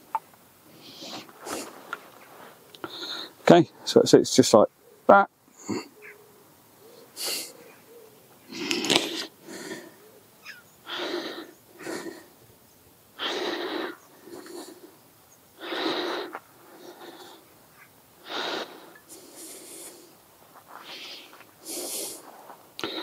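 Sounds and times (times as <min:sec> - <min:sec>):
air wheezing from rubber boot: 0:00.7 - 0:01.9, 0:18.2 - 0:23.0.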